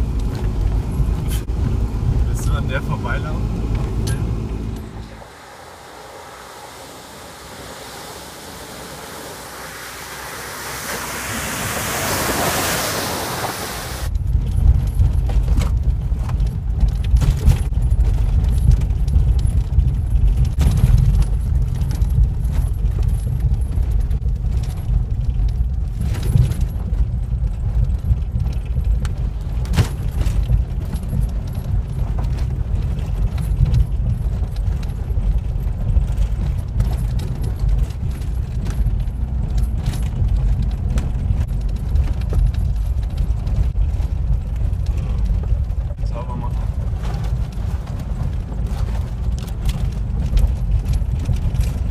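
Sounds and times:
vehicle rumbling on dirt track: 0.0 - 51.9
vehicle splashing through puddle: 1.3 - 14.1
rattles and knocks: 14.1 - 51.9.

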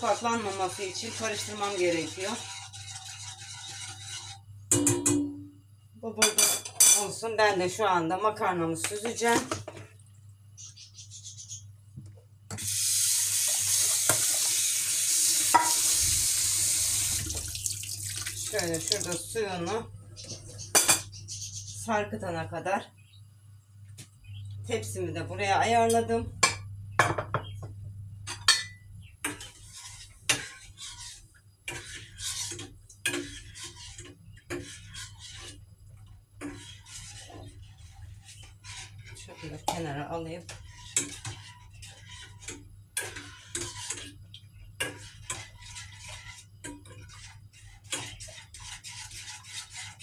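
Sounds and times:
utensils scraping saucepan: 0.0 - 4.5, 29.3 - 44.2, 44.8 - 50.0
water pouring into a sink: 12.6 - 19.3
utensils clinking on saucepan: 15.5 - 15.9.

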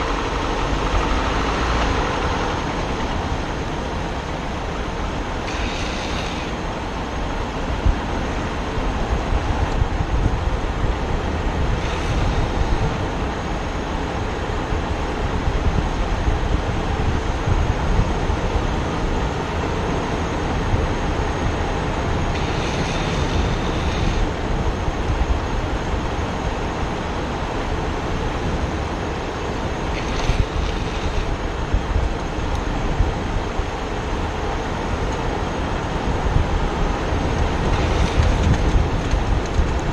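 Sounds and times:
skateboard wheels rolling on asphalt: 0.0 - 39.9
wind noise on microphone: 0.0 - 39.9
higher hiss: 5.4 - 6.8, 22.3 - 24.4.

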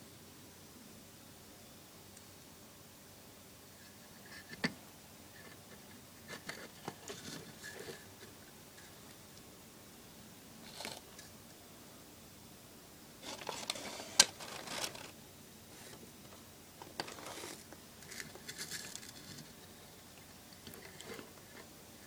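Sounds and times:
light clicks and scrapes: 5.4 - 9.2, 16.8 - 19.8, 20.5 - 21.7.

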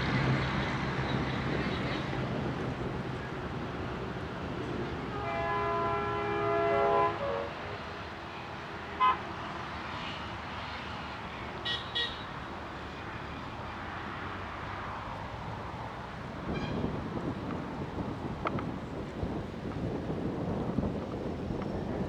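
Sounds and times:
distant diesel locomotive horn: 5.0 - 7.6, 9.0 - 9.2.

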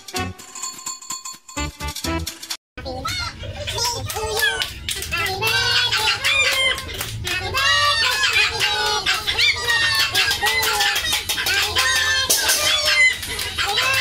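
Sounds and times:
steady low hum: 2.8 - 14.0.

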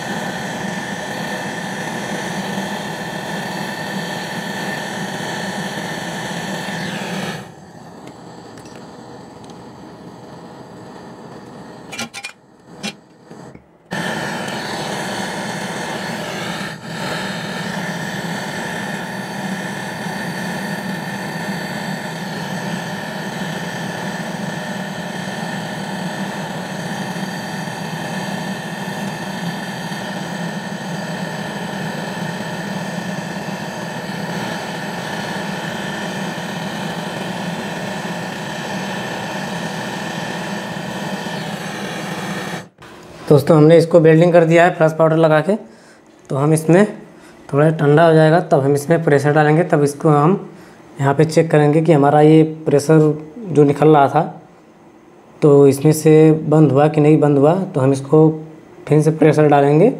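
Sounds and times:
gas torch hissing: 0.0 - 54.5.

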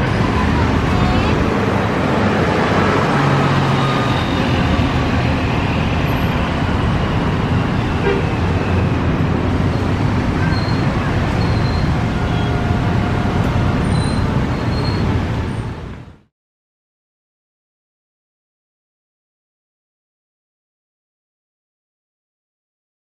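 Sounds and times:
bus diesel engine: 0.0 - 16.3
street traffic: 0.0 - 16.3.

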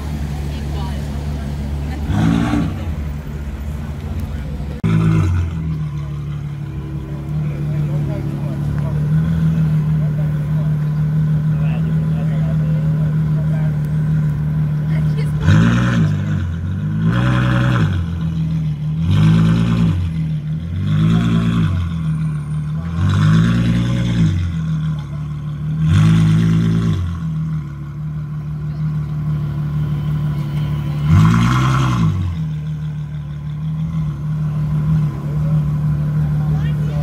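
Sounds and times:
car engine revving: 0.0 - 37.0.

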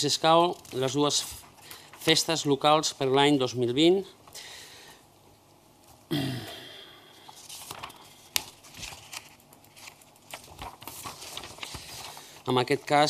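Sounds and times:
paper rustling: 0.2 - 2.4, 7.2 - 13.0.

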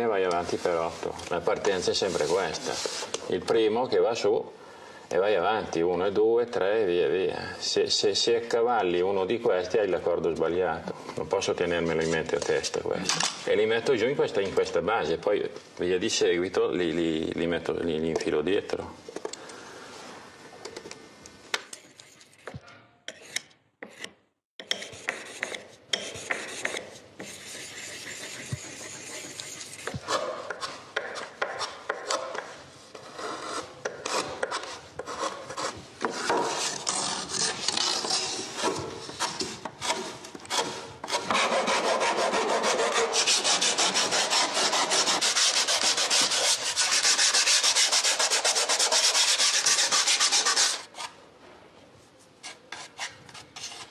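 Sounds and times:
hand sanding wood: 24.7 - 32.2, 33.2 - 50.9.

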